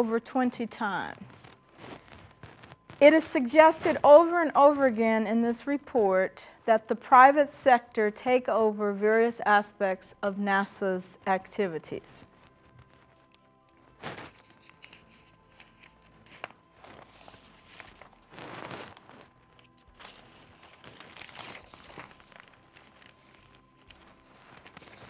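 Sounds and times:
paper sheets rustling: 14.0s - 25.0s.

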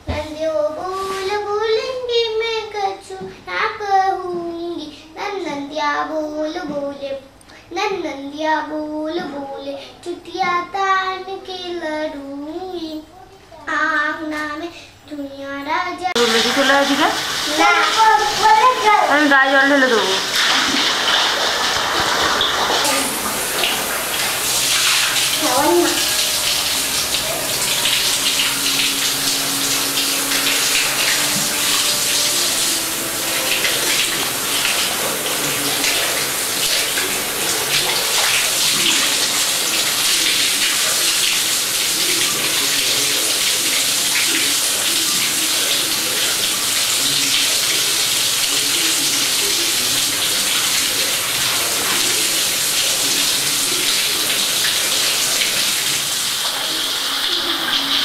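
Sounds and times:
tap water splashing into bucket: 20.0s - 56.7s.

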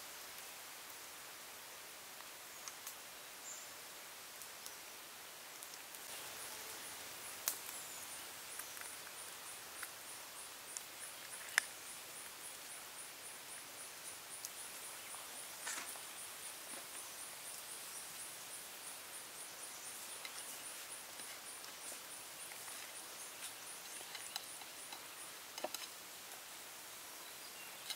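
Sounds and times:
high insect chirp: 5.7s - 27.9s.

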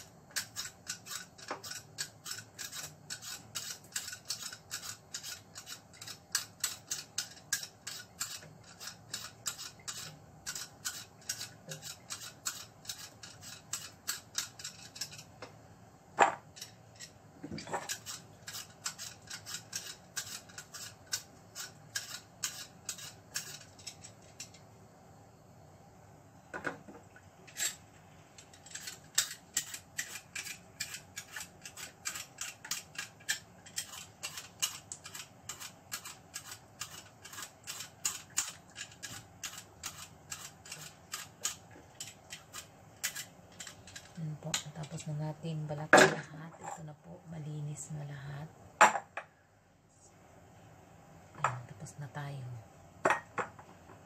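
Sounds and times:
peeler scraping potatoes: 0.0s - 15.4s, 16.5s - 24.6s, 28.4s - 45.3s.

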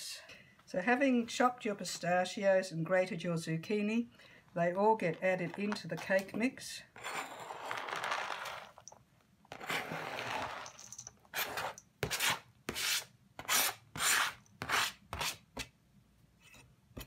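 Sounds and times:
blade scraping cutting board: 7.0s - 8.8s, 9.5s - 10.7s, 11.3s - 15.4s.

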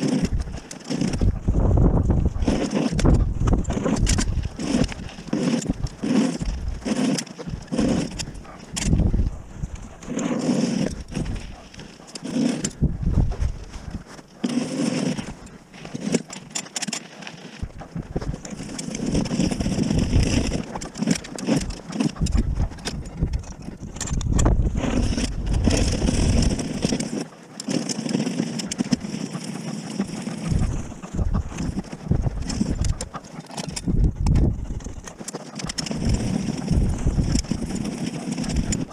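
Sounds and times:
tyres rolling: 0.0s - 23.3s
snow plough blade scraping snow: 0.0s - 38.9s.

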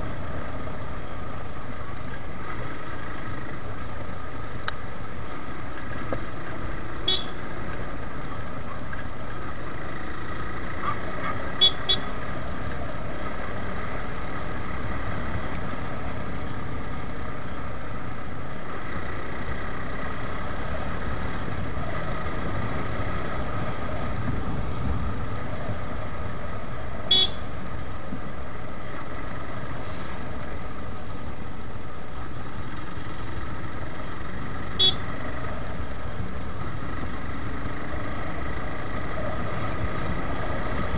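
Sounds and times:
motorcycle engine running: 0.0s - 40.9s
wind and road noise: 0.0s - 40.9s
horn toots: 7.0s - 7.5s, 10.8s - 12.3s, 27.0s - 27.5s, 34.7s - 35.2s.

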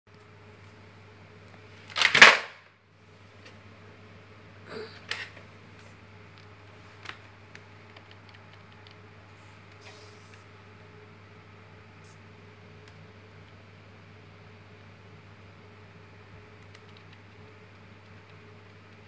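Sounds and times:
steady low hum: 0.1s - 19.0s
keyboard keys clicking: 7.8s - 9.0s, 16.6s - 19.0s.

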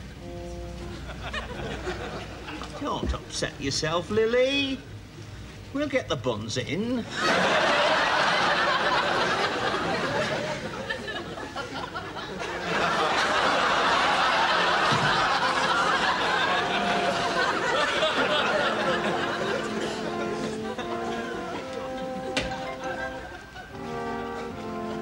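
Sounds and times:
studio audience laughing: 0.9s - 2.7s, 7.1s - 24.0s.

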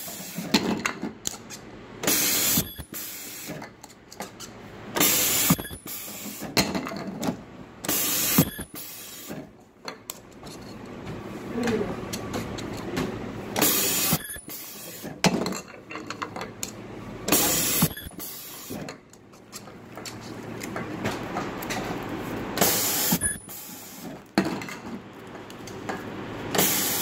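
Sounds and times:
ultrasonic welder hissing: 22.6s - 24.1s, 26.6s - 27.0s.

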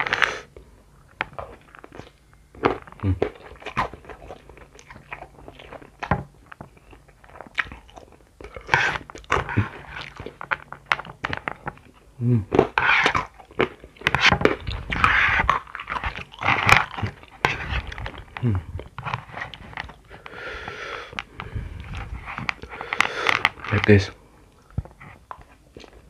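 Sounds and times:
chewing and crunching: 0.0s - 26.0s.

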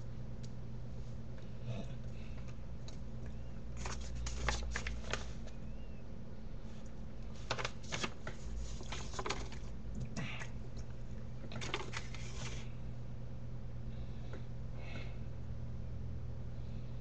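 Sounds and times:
low electrical hum: 0.0s - 17.0s
paper envelope rustling: 3.8s - 5.5s, 7.3s - 9.7s, 11.5s - 12.7s.

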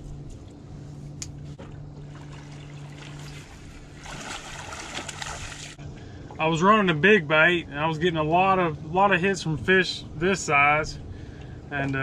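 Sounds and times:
steady low hum: 0.0s - 12.0s
fish splashing at water surface: 2.0s - 5.8s.

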